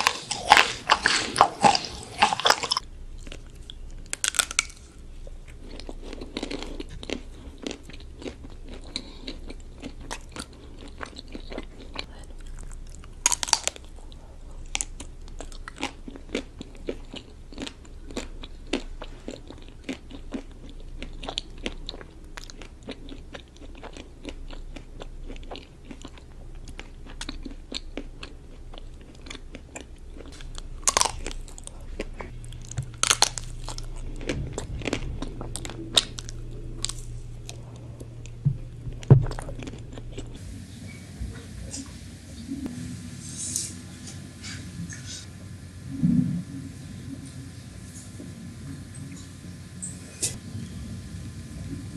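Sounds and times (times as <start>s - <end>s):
chewing: 0.0s - 40.4s.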